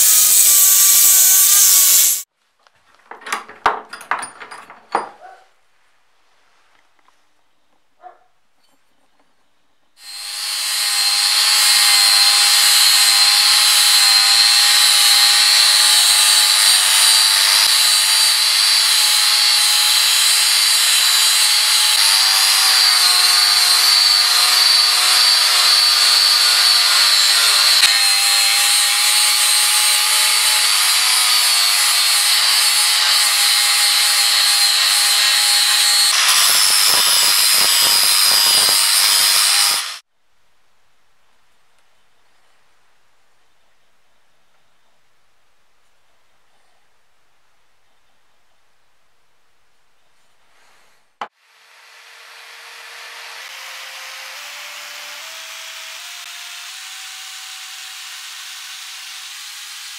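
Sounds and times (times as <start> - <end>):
angle grinder grinding steel: 0.0 - 2.3, 10.0 - 40.0.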